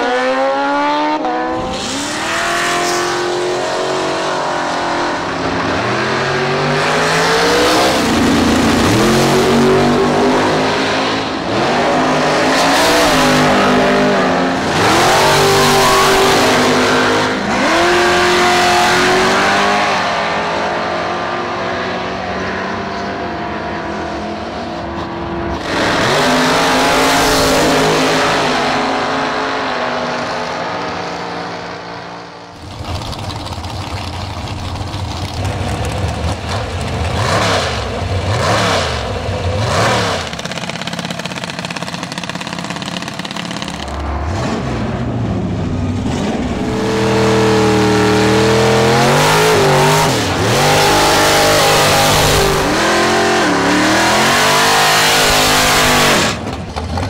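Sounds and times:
drag motorcycle engines at full throttle: 0.0 - 57.0
drag cars launching: 0.8 - 21.1, 32.6 - 57.0.

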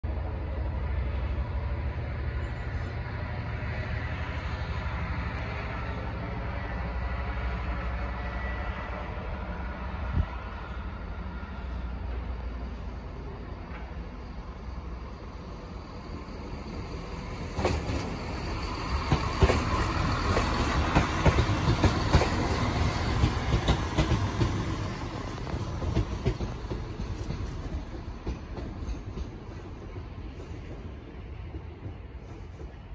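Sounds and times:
diesel train engine and rail rumble: 0.0 - 32.9.

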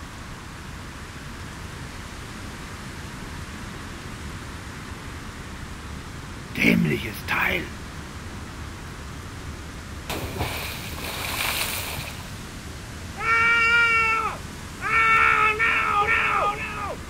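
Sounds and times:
soft static hiss: 0.0 - 17.0
cat-like meowing calls: 13.1 - 17.0.

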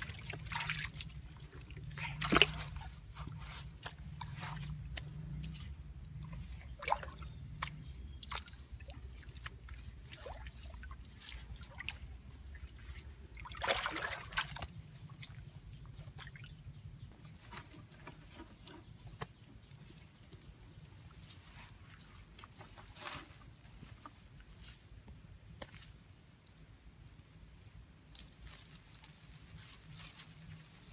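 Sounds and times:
water splashing: 0.0 - 3.2, 3.8 - 15.4
hands scooping wet mud: 0.0 - 24.6.

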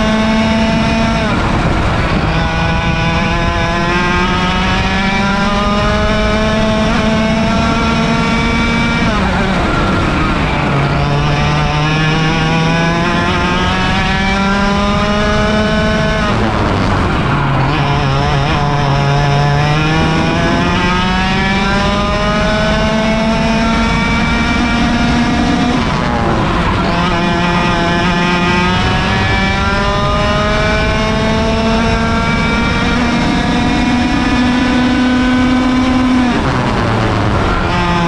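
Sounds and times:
kart engine revving: 0.0 - 38.0.

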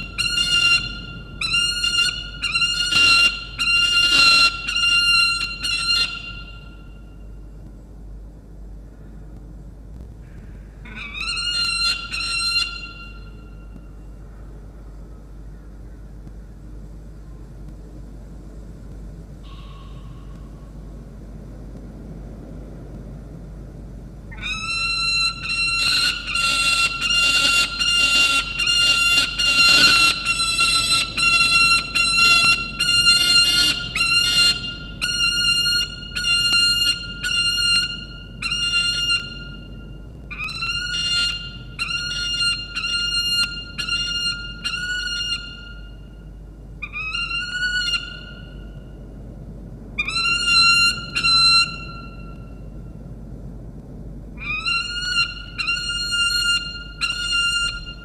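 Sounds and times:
falcon squawking: 0.0 - 6.8, 10.3 - 13.4, 19.4 - 20.5, 24.3 - 46.0, 46.8 - 48.7, 50.0 - 52.3, 54.4 - 58.0
low steady rumble: 0.0 - 58.0.

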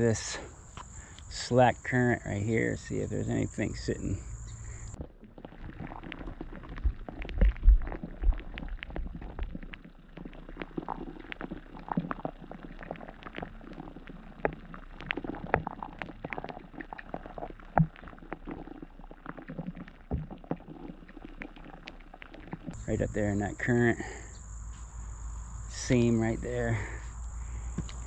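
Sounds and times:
muffled underwater river rumble: 0.0 - 28.0
small clicks and crackles: 4.9 - 22.8.

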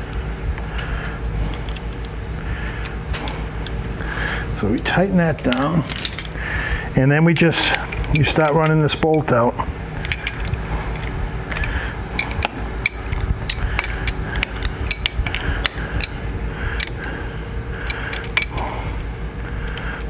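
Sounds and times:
steady low hum: 0.0 - 20.0
wrench clicking: 10.0 - 16.2, 16.8 - 17.1.

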